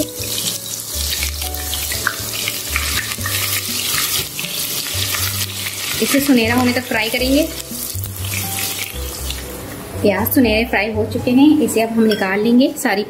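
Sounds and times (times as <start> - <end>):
spatula stirring in oil: 0.0 - 9.6
onions sizzling in hot oil: 0.0 - 9.8.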